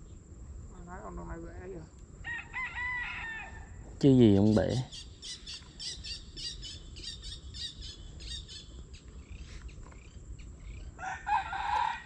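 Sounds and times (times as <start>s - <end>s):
small bird chirping: 4.2s - 11.0s
loud pitched bird call: 4.3s - 9.8s.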